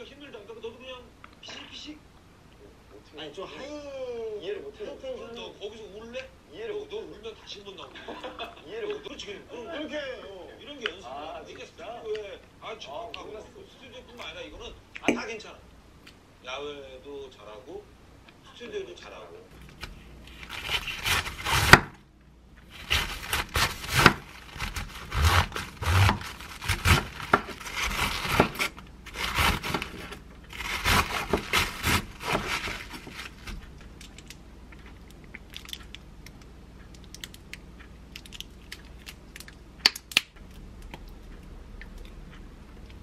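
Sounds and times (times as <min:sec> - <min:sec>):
knife shredding cabbage: 0:19.7 - 0:22.0, 0:22.7 - 0:33.8.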